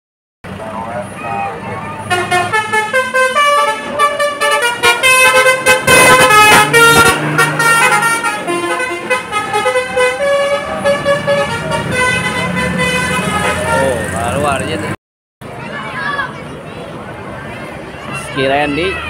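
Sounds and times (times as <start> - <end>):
bus driving past: 0.5 - 19.0
bus horn playing melody: 2.0 - 14.0.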